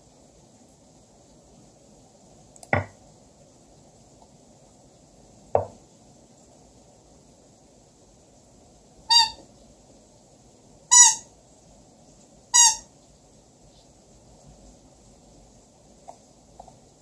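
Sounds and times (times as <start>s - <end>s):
squeaky toy squeaks: 9.1s - 9.4s, 10.9s - 11.3s, 12.6s - 12.9s.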